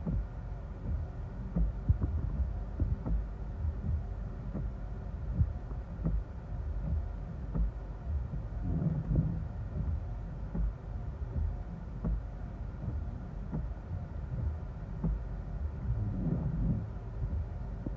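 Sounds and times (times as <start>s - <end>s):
low rumble inside car cabin: 0.0s - 17.9s
wind buffeting car with thumps: 0.0s - 17.9s.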